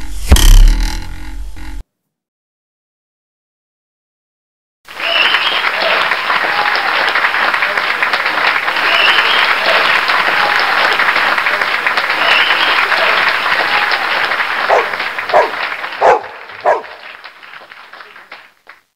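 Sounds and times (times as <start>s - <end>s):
crowd applauding: 4.9s - 18.9s
dog barking: 14.7s - 17.0s.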